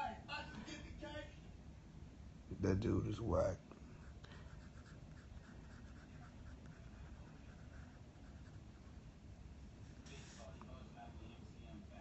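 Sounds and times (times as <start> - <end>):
pencil scratching on paper: 4.0 - 8.7.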